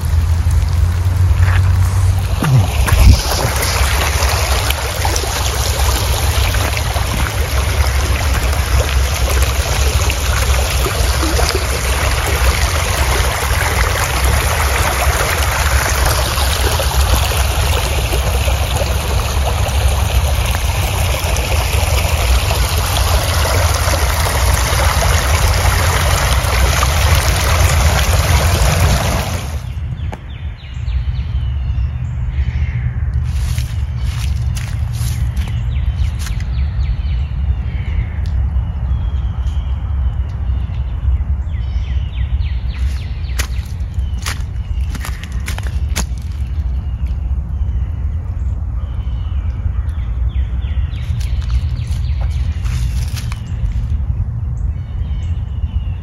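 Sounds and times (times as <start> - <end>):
low rumble: 0.0 - 21.4
water rushing over stones: 0.0 - 29.8, 33.3 - 36.5, 42.7 - 47.2, 50.9 - 54.0.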